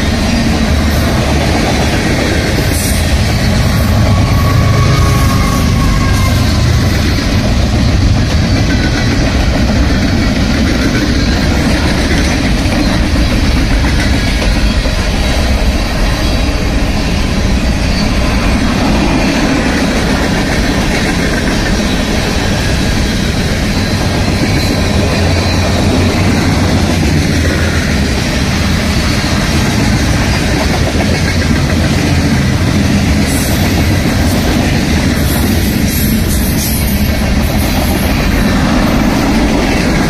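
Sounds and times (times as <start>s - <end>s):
train wheels rumbling on rails: 0.0s - 40.0s.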